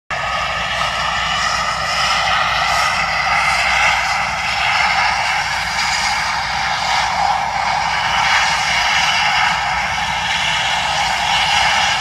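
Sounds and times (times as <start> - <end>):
helicopter turbine engines whining: 0.1 - 12.0.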